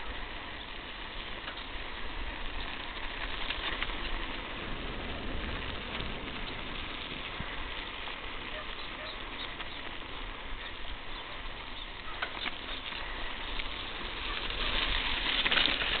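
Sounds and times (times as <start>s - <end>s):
tyres rolling over gravel: 0.0s - 16.0s.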